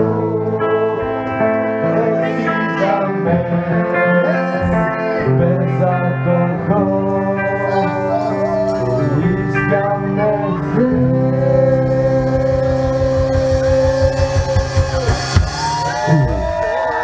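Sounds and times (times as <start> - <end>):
live rock band: 0.0 - 17.0
guitar notes sliding and ringing: 7.5 - 15.4
fast even drumming: 12.3 - 17.0.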